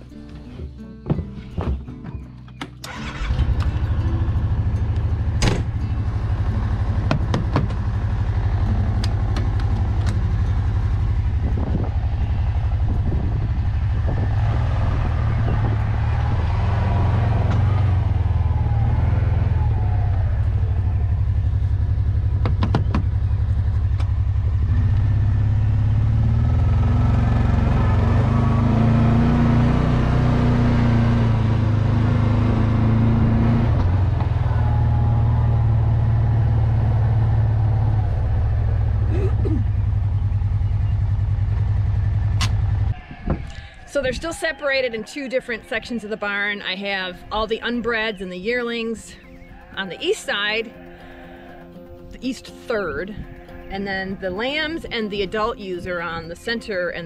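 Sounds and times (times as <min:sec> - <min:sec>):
utility vehicle engine running: 0:00.0 - 0:43.1
sharp knocks: 0:22.4 - 0:23.2.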